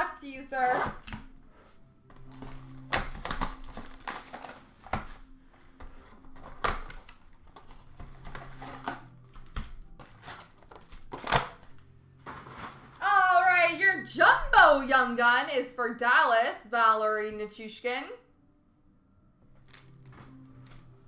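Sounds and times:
cardboard box being torn open: 0:02.3 - 0:05.1, 0:10.0 - 0:11.7.

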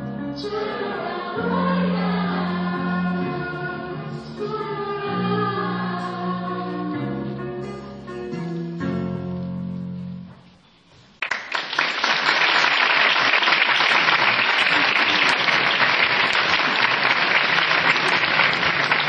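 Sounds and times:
audience applause: 0:11.2 - 0:19.0.

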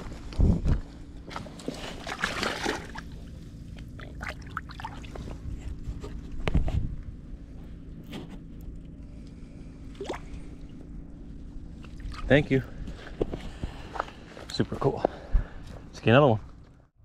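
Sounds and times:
fish splashing in water: 0:01.3 - 0:05.2.

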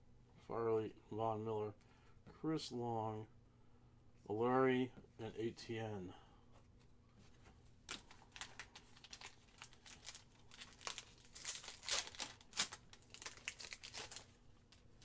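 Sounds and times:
foil pack tearing and crinkling: 0:07.9 - 0:14.8.

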